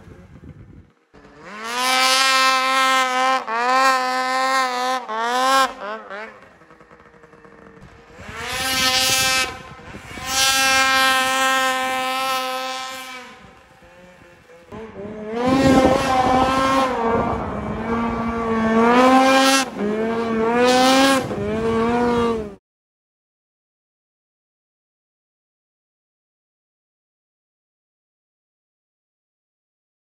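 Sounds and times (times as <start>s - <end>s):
snowmobile engines revving: 0.0s - 22.6s.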